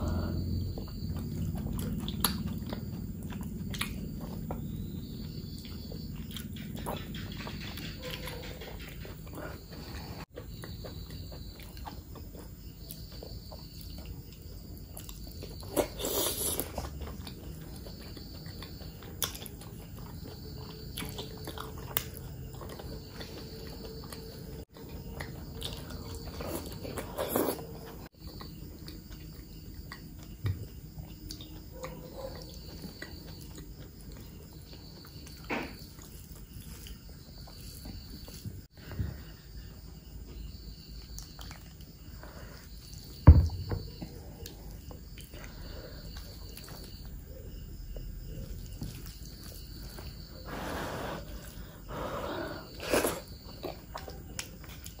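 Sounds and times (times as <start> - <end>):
faint high insect chirp: 0.0 - 55.0
wet chewing and biting: 0.3 - 38.6, 52.7 - 55.0.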